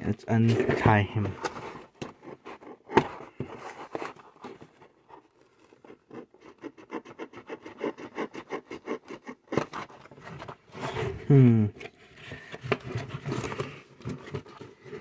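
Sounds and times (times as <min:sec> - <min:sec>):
knife sawing at plastic tie: 0:05.6 - 0:10.0.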